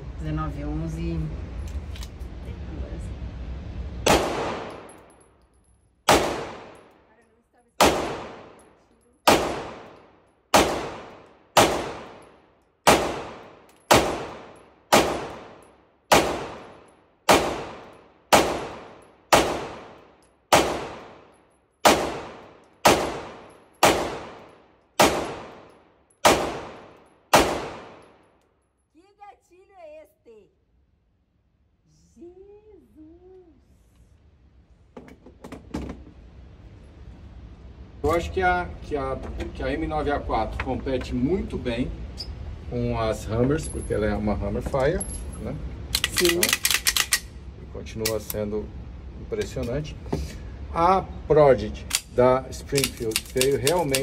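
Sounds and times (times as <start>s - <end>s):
pistol shots echoing indoors: 9.2s - 28.3s.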